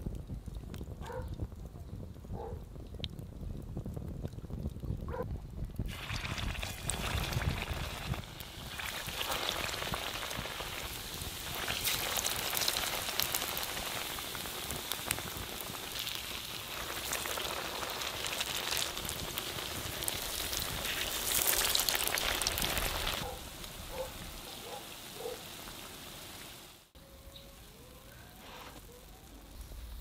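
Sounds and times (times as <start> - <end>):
food sizzling in oil: 5.9 - 27.0.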